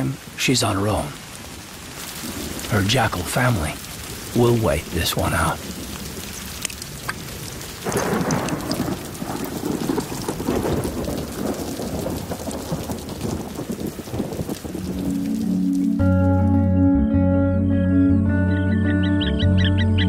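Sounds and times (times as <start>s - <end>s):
heavy rain pattering into water: 0.0s - 16.6s
thunder rumbling: 1.5s - 16.6s.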